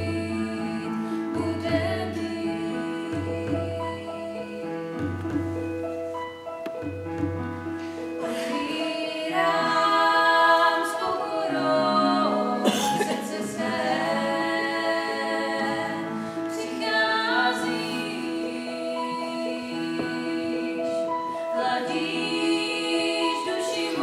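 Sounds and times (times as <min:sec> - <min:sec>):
electronic keyboard chords: 0:00.0 - 0:08.8
choir singing: 0:08.2 - 0:24.0.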